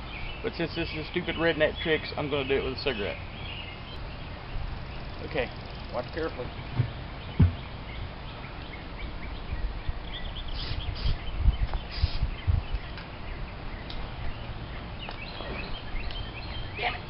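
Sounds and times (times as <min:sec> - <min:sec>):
birds chirping: 0:00.0 - 0:17.0
dull thumps: 0:06.7 - 0:07.7.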